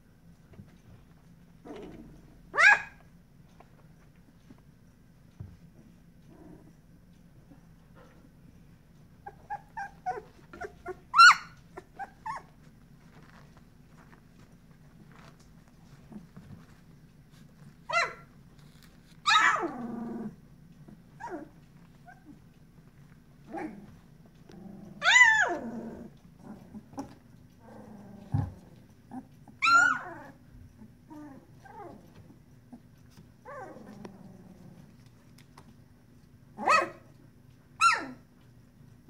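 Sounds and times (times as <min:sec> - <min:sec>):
puppies yelping and whining: 0:09.1 - 0:13.4, 0:17.8 - 0:20.4, 0:25.0 - 0:34.0, 0:37.8 - 0:38.2.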